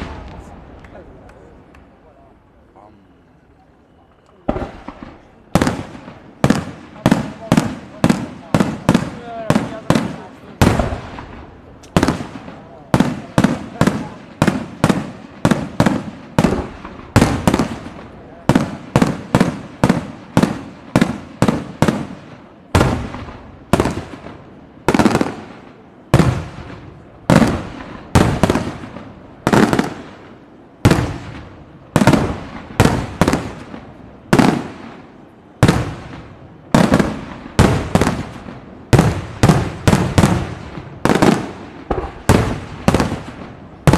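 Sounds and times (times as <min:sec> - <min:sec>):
fireworks bursting with echo: 0:00.0 - 0:02.2, 0:02.8 - 0:43.9.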